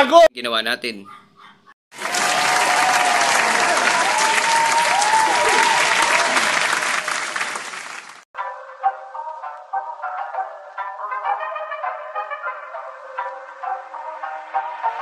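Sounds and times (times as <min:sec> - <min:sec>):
crowd applauding and cheering: 0:01.9 - 0:08.2.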